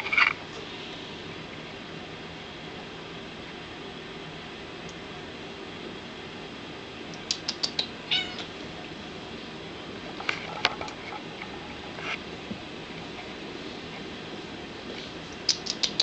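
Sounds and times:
sharp clicks: 7.1s - 7.9s, 15.4s - 16.0s
cat meowing: 8.1s - 8.5s.

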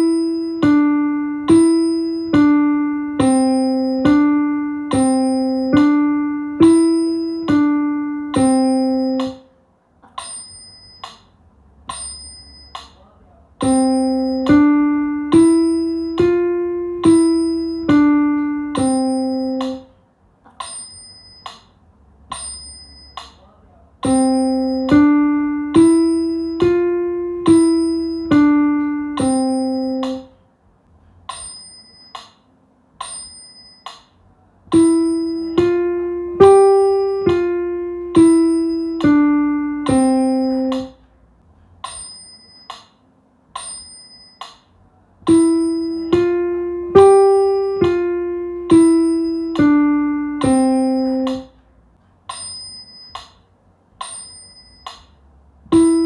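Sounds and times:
metronome ticking: 0.0s - 9.5s, 11.9s - 19.9s, 22.3s - 30.3s, 34.7s - 41.0s, 45.3s - 51.6s, 55.7s - 56.0s
piano single notes: 0.0s - 9.6s, 13.6s - 20.0s, 22.3s - 30.4s, 34.7s - 41.2s, 45.3s - 51.6s, 55.7s - 56.0s.

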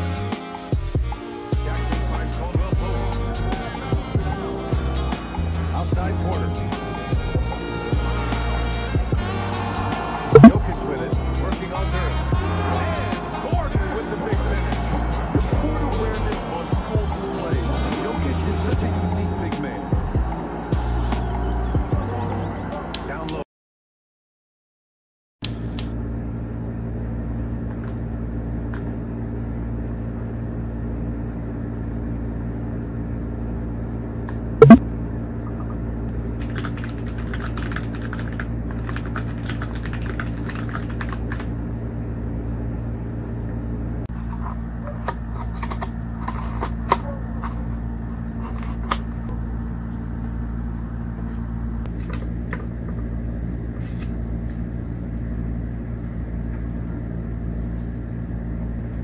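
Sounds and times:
steady low hum: 41.5s - 59.0s.

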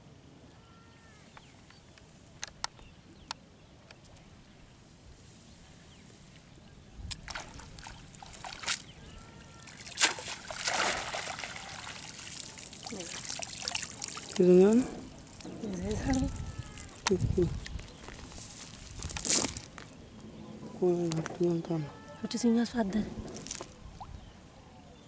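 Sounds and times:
water dripping and splashing: 7.1s - 17.9s.

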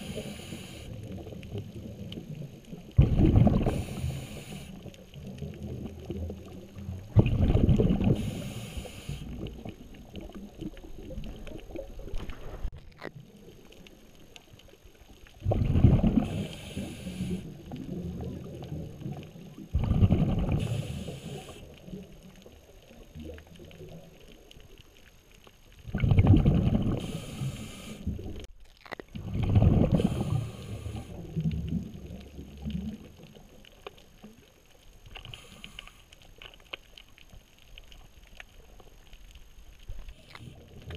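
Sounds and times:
faint breathing hiss: 0.0s - 1.3s, 3.5s - 5.2s, 8.0s - 9.8s, 16.1s - 17.8s, 20.5s - 22.0s, 26.8s - 28.5s, 29.8s - 31.5s, 35.2s - 36.6s
underwater exhaled bubbles: 0.0s - 40.9s.

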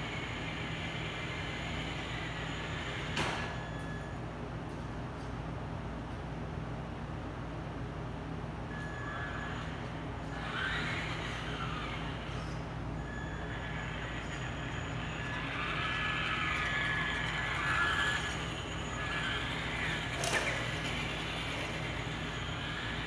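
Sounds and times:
low hum: 8.7s - 23.0s
toy truck motor whining: 8.8s - 23.0s.

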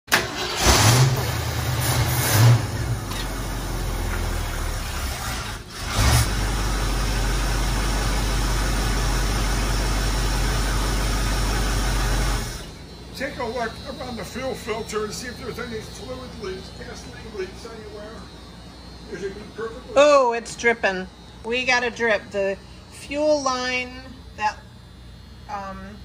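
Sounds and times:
car engine idling: 0.1s - 18.9s.

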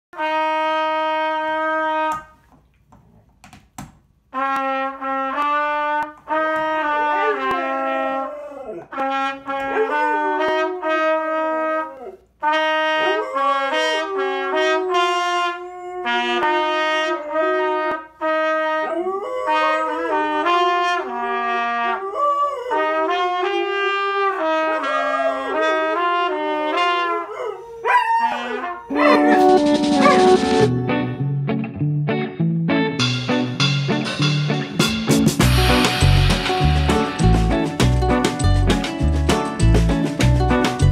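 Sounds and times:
trumpet playing held notes: 0.2s - 2.4s, 4.3s - 22.1s, 22.7s - 27.5s, 28.4s - 31.3s, 35.4s - 40.9s
dog howling: 7.1s - 9.0s, 9.7s - 10.8s, 13.0s - 17.8s, 18.8s - 20.4s, 21.5s - 23.3s, 24.2s - 26.0s, 27.0s - 30.3s.

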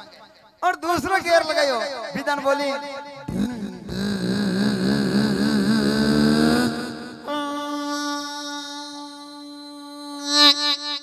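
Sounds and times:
man imitating engine with voice: 3.3s - 8.6s.

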